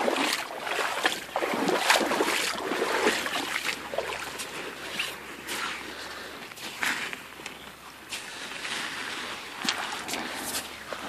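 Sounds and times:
boots wading through water: 0.0 - 11.0.

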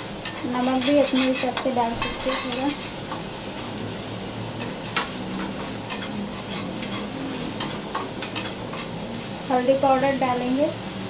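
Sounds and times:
steady sizzle: 0.0 - 11.0.

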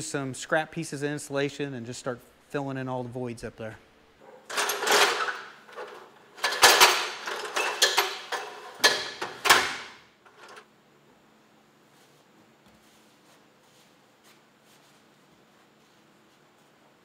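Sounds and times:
metal ladder clanking and rattling: 4.5 - 10.6.

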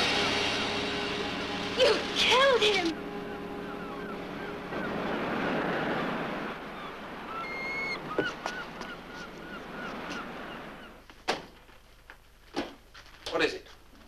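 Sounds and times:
wind and sea rushing: 0.0 - 11.1
seabirds calling: 0.0 - 11.8.

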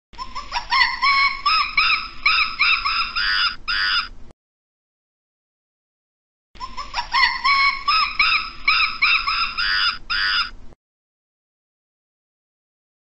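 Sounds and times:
primate hooting: 0.2 - 4.1, 6.6 - 10.6.

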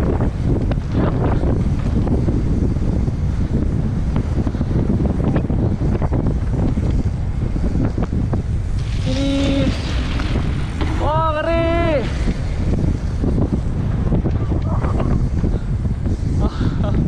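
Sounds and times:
bike knocks and rattles: 0.0 - 17.0
wind buffeting microphone: 0.0 - 17.0.

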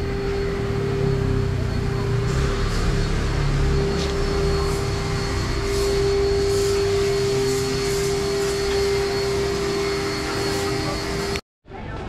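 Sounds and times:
machine hum with whine: 0.0 - 11.4.

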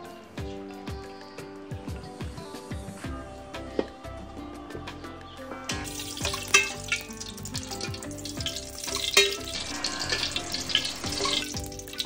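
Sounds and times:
background music with beat: 0.0 - 12.0
oil sizzling in a wok: 5.7 - 12.0.

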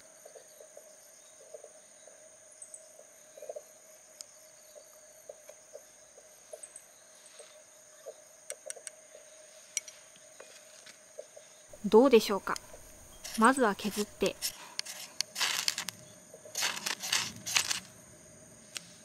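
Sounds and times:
insects trilling: 0.0 - 19.0
scissors scraping fire-starter rod: 12.4 - 17.9.

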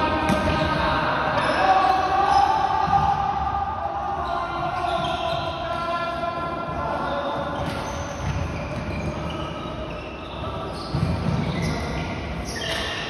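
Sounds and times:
shoes squeaking on court: 4.2 - 5.8, 6.9 - 13.0.

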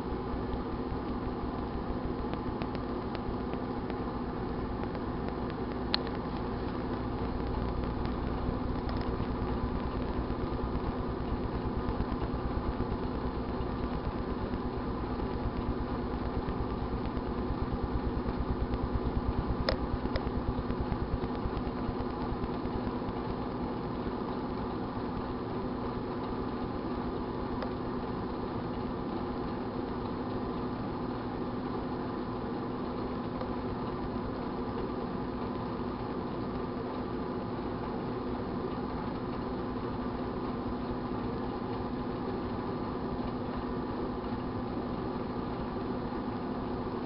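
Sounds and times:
microwave oven humming: 0.0 - 47.0
faint clicks: 0.5 - 4.0, 4.8 - 23.6.

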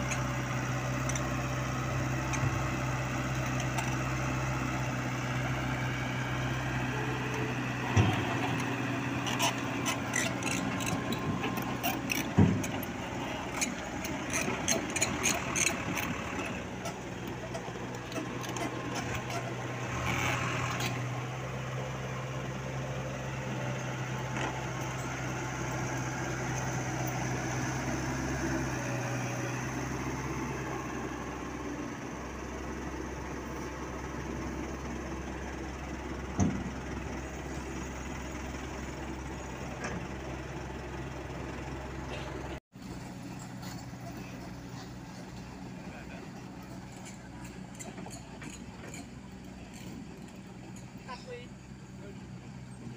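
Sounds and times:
diesel truck engine humming: 0.0 - 52.9.

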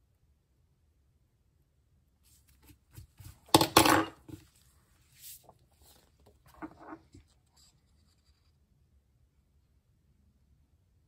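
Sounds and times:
paper rustles: 4.3 - 8.4.

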